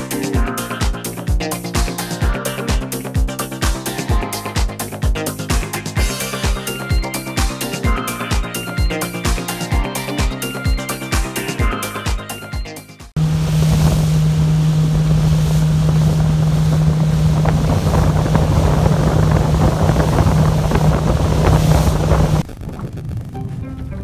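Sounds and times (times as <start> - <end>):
boat engine drone: 0.0 - 24.0
rushing water: 13.2 - 22.4
wind buffeting microphone: 13.2 - 24.0.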